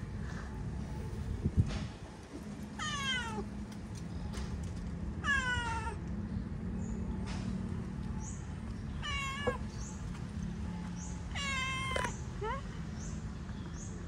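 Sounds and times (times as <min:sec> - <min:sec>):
cat meowing: 0:02.8 - 0:03.4, 0:09.0 - 0:09.6, 0:11.3 - 0:12.2.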